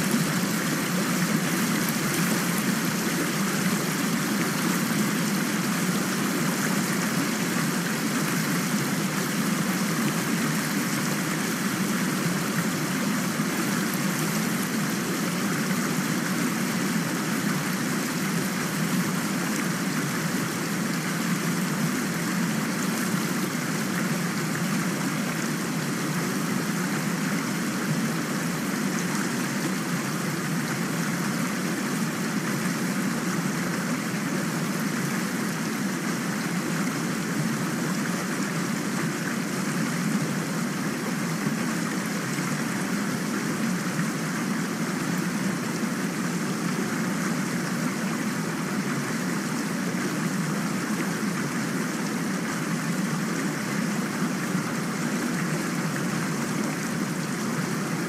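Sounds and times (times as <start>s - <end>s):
steady rain hiss: 0.0s - 58.0s.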